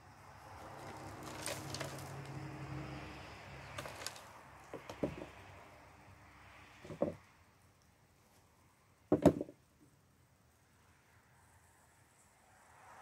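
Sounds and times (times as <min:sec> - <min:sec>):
soil rustling and crumbling: 0:00.4 - 0:02.6, 0:03.5 - 0:05.4.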